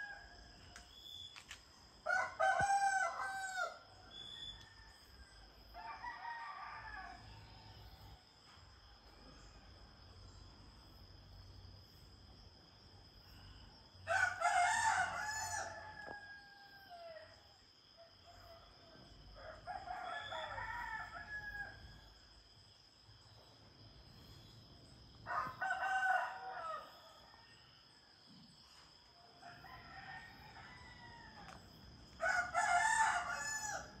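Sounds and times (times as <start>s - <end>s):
roosters crowing: 32.2s - 34.0s.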